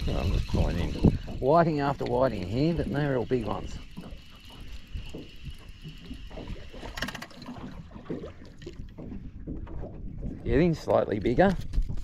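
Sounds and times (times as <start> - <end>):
spinning reel winding: 0.0 - 7.3
water lapping against boat hull: 0.0 - 12.0
fish splashing: 2.7 - 10.4.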